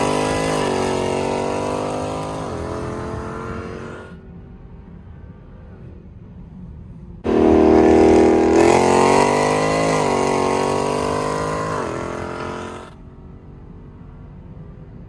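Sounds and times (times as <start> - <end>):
car engine at full throttle: 0.0 - 5.8, 7.1 - 14.9.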